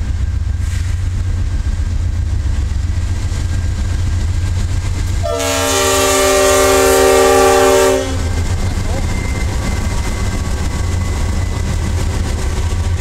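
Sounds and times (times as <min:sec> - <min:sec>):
diesel locomotive rumbling past: 0:00.0 - 0:13.0
multi-note air horn: 0:05.2 - 0:08.3.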